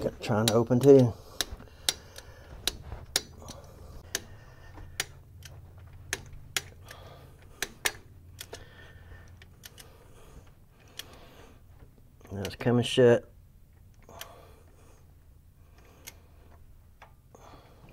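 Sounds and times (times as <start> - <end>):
low steady hum: 0.0 - 17.9.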